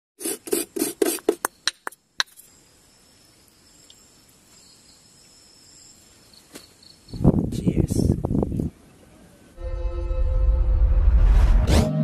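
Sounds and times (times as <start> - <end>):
fork grating coconut: 0.2 - 1.4
crickets chirring: 0.2 - 8.4.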